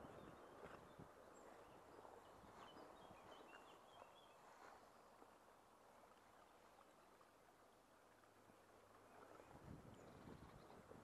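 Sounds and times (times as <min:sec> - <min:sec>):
walking through tall grass: 0:02.4 - 0:05.3.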